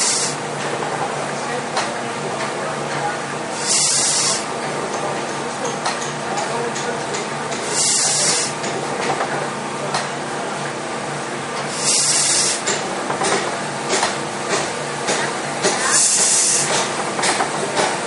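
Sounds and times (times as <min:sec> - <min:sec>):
steam hissing: 0:00.0 - 0:00.4, 0:03.5 - 0:04.5, 0:07.6 - 0:08.6, 0:11.7 - 0:12.8, 0:15.6 - 0:18.0
steam engine clicking: 0:11.7 - 0:18.0.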